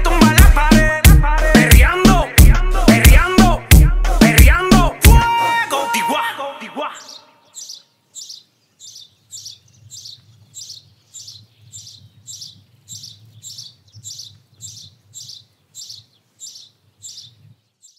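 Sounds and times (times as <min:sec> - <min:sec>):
high chirping call: 0:06.8 - 0:17.9.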